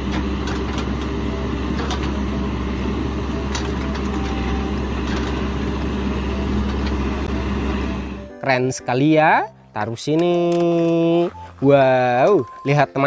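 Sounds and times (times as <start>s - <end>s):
diesel engine droning: 0.0s - 8.5s.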